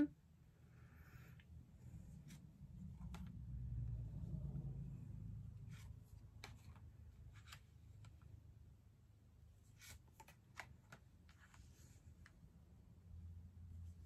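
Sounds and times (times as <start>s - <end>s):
low room hum: 0.0s - 14.0s
cards rustling and snapping: 2.2s - 3.5s, 5.7s - 8.4s, 9.7s - 12.4s.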